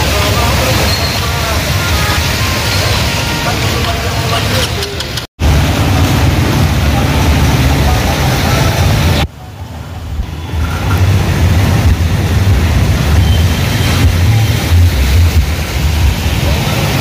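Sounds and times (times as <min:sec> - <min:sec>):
heavy rain hiss: 0:00.0 - 0:17.0
loud low rumble: 0:05.4 - 0:09.3, 0:10.0 - 0:17.0.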